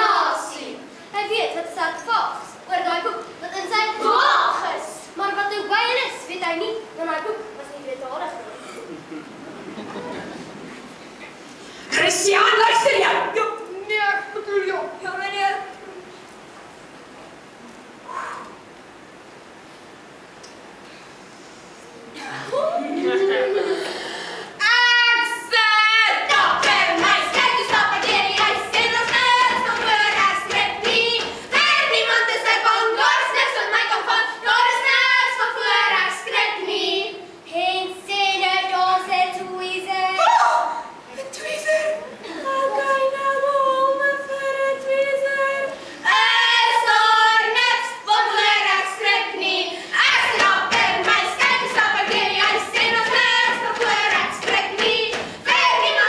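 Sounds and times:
children singing unaccompanied: 0:24.7 - 0:40.2, 0:42.6 - 0:56.0
girl singing high: 0:39.4 - 0:48.4.

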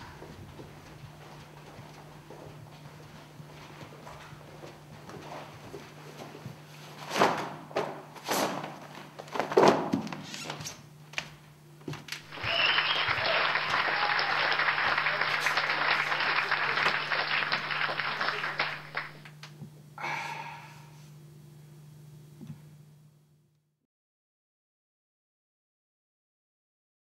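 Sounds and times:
applause: 0:12.2 - 0:19.3.

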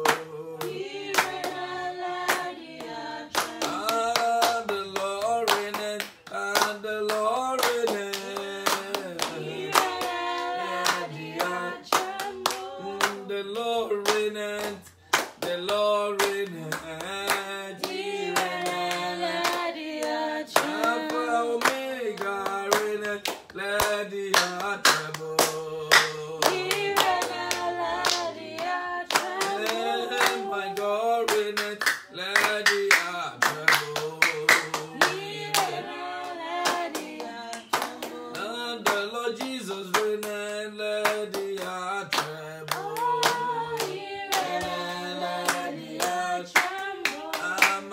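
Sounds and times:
hands clapping rhythmically: 0:00.0 - 0:47.9
man singing worship song: 0:00.0 - 0:47.9.

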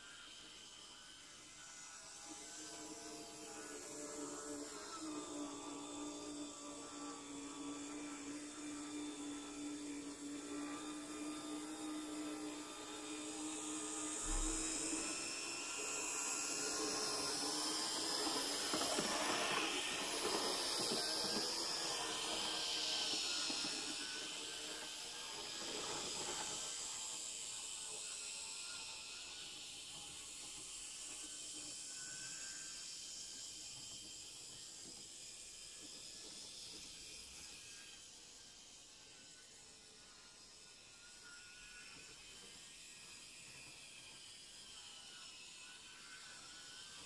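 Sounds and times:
model train motor whirring: 0:00.0 - 0:47.0
wheels on rails: 0:13.1 - 0:30.5.

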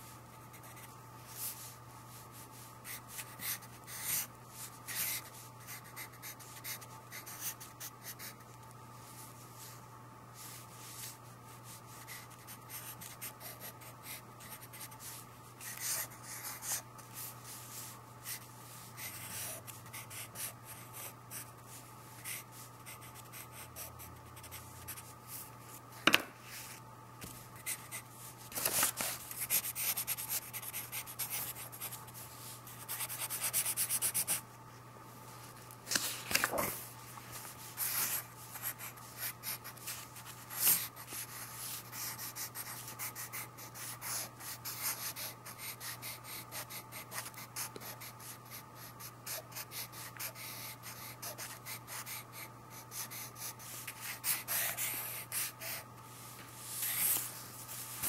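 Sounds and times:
pencil scratching on paper: 0:29.0 - 0:32.0, 0:37.8 - 0:55.8.

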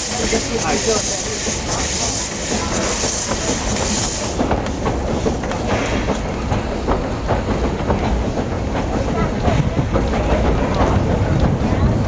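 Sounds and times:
steam hissing: 0:00.0 - 0:12.0
train rumbling: 0:00.0 - 0:12.0
train wheels knocking on rails: 0:00.0 - 0:12.0.

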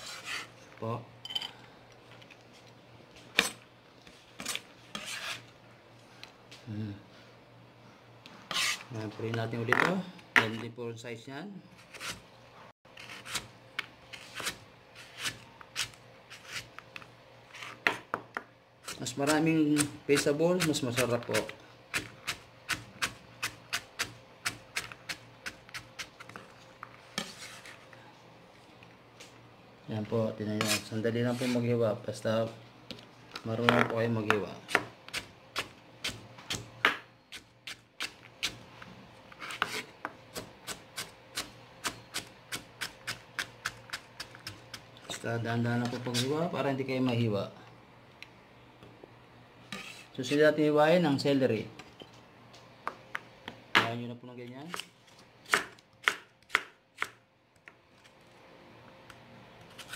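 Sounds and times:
knife scraping stroke: 0:00.0 - 0:00.6, 0:04.4 - 0:05.5, 0:08.5 - 0:08.9, 0:11.8 - 0:12.2, 0:14.1 - 0:16.8, 0:27.1 - 0:27.9, 0:30.5 - 0:31.8, 0:39.3 - 0:40.0, 0:49.7 - 0:50.4.

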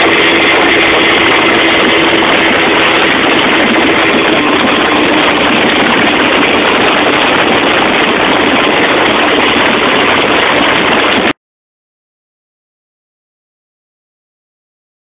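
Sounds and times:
outboard motor running: 0:00.0 - 0:11.4
rush of boat wake: 0:00.0 - 0:11.4.

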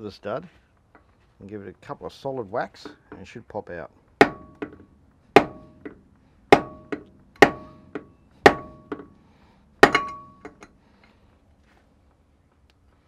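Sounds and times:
mallet striking brass drift: 0:05.4 - 0:09.1
short metallic ring: 0:09.8 - 0:10.8.

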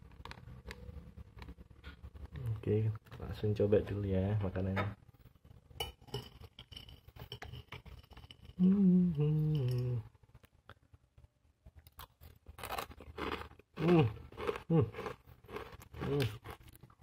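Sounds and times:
person humming: 0:08.6 - 0:10.1, 0:13.8 - 0:15.0, 0:16.0 - 0:16.4.

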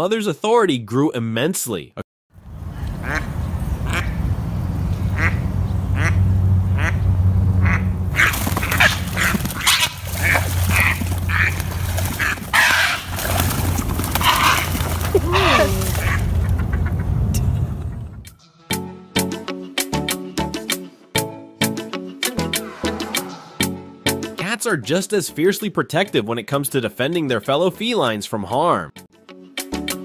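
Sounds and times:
duck quacking: 0:03.0 - 0:04.2, 0:05.1 - 0:13.2, 0:14.0 - 0:17.3
water splashing: 0:08.1 - 0:16.8
wing flaps: 0:08.1 - 0:16.8.

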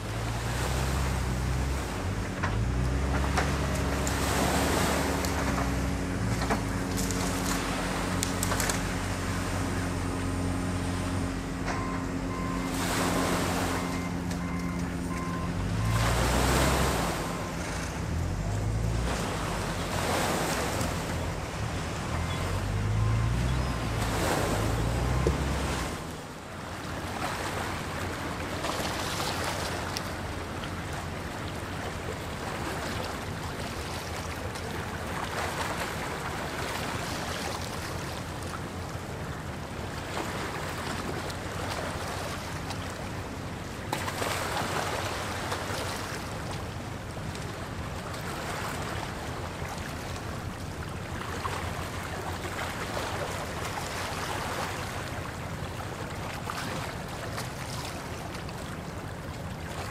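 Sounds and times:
small waves washing on rocks: 0:00.0 - 0:11.4, 0:12.7 - 0:23.0, 0:23.8 - 0:59.9.

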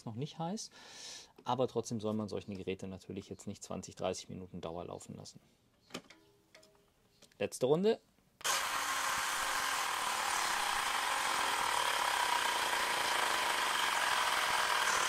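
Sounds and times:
air compressor running: 0:08.4 - 0:15.0.

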